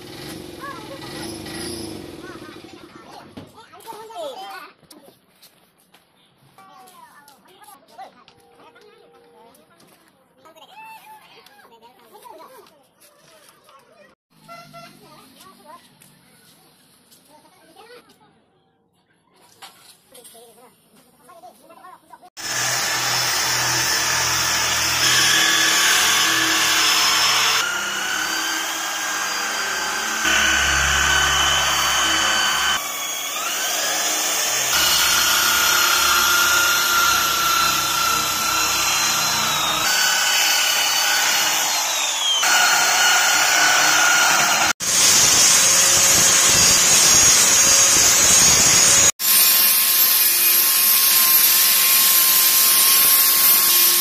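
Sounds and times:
angle grinder grinding steel: 22.4 - 54.0
drill sanding steel panels: 22.4 - 54.0.

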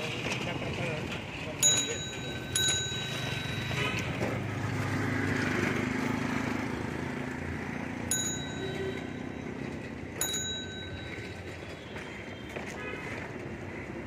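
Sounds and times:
street traffic noise: 0.0 - 14.0
rickshaw bell ringing: 1.6 - 4.9, 8.0 - 12.5
vehicle engine hum passing: 3.1 - 10.2.

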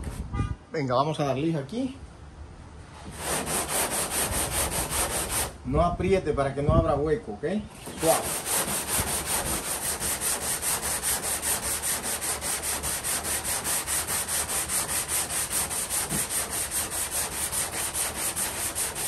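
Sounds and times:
sandpaper rasping on filler: 3.0 - 5.6, 7.8 - 19.0.

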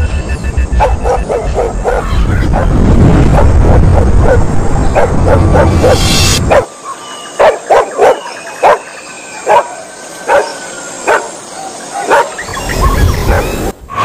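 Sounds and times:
heavy low rumble: 0.4 - 6.6
dogs barking: 0.8 - 13.6.

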